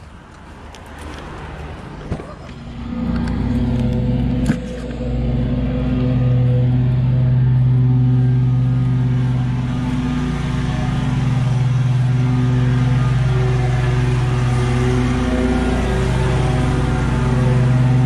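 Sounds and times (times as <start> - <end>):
lawn mower engine running: 2.6 - 18.0.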